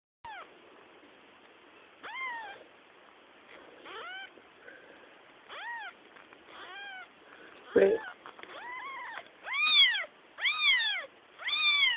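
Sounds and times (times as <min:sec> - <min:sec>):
kitten mewing: 0:02.0 - 0:02.6, 0:03.8 - 0:04.4, 0:05.5 - 0:11.9.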